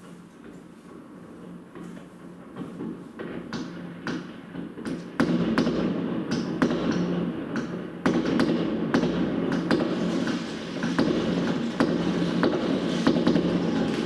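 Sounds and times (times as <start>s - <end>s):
fireworks bangs and crackles: 2.8s - 14.0s.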